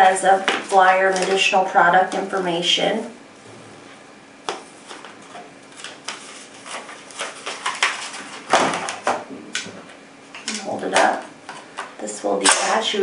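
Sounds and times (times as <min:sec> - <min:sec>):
paper and plastic packaging rustling: 0:04.6 - 0:09.1.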